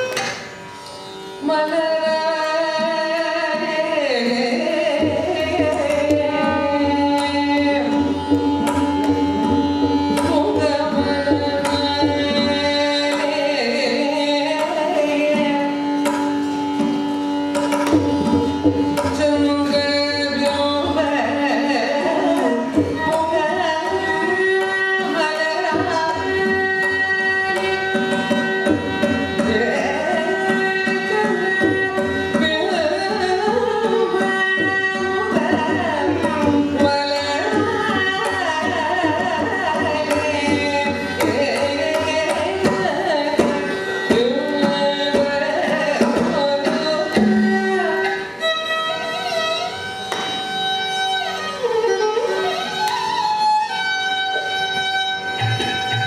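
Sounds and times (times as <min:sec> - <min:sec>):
mridangam drum strokes: 0:00.0 - 0:56.0
tanpura drone: 0:00.0 - 0:56.0
violin accompaniment: 0:00.0 - 0:56.0
woman singing: 0:01.4 - 0:08.3, 0:10.1 - 0:15.9, 0:19.0 - 0:27.7, 0:29.3 - 0:48.2.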